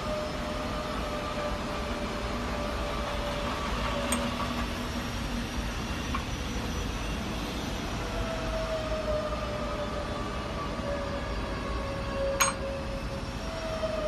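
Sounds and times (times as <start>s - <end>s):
faint held tone: 12.4s - 12.6s.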